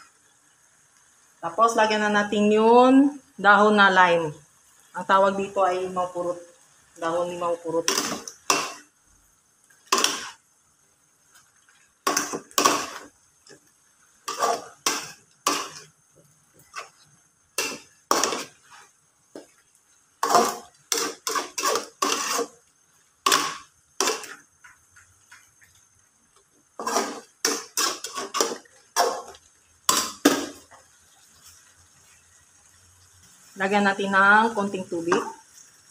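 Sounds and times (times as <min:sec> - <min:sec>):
metal spatula scraping a wok: 0:07.8 - 0:08.8, 0:09.8 - 0:10.4, 0:12.0 - 0:13.1, 0:14.2 - 0:16.0, 0:17.6 - 0:19.0, 0:20.2 - 0:24.4, 0:26.8 - 0:30.5.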